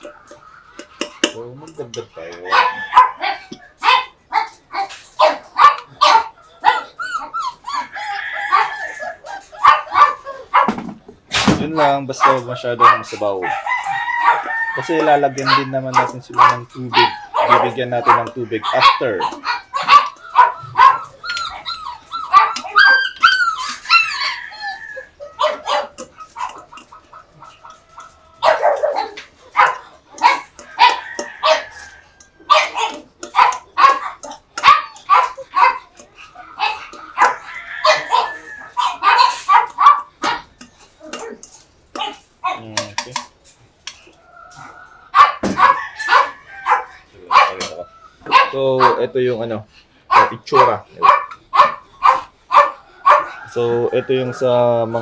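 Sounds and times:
dogs barking and yipping: 0.0s - 55.0s
dogs whining: 1.9s - 10.8s, 11.8s - 42.8s, 44.0s - 49.3s.

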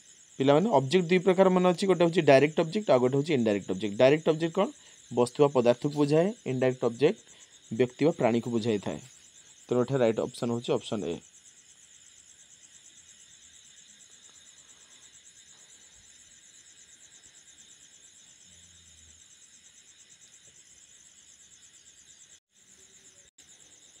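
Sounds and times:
low background hiss: 0.0s - 21.2s
crickets trilling: 0.0s - 24.0s.

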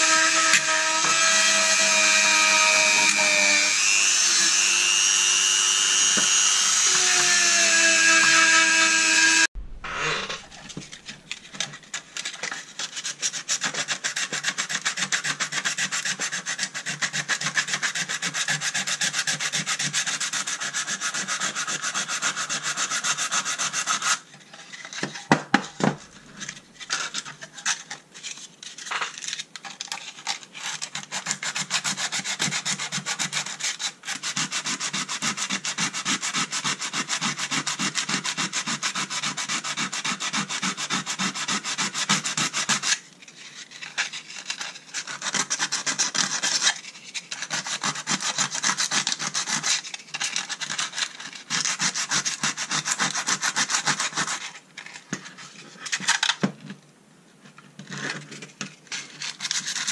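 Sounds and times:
sanding on metal: 12.2s - 25.1s, 30.3s - 54.6s, 58.9s - 59.9s.

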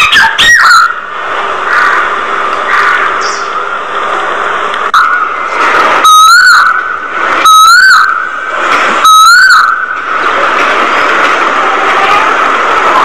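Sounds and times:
rising falling whistled calls: 0.0s - 1.1s, 4.9s - 8.4s.

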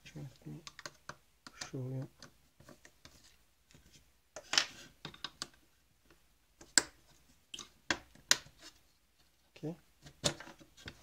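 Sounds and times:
plastic clicks and scrapes: 0.6s - 5.6s.

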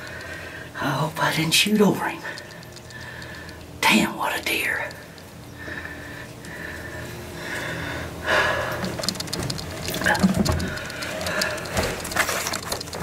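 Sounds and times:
camera handling rustling and bumps: 8.9s - 13.0s.

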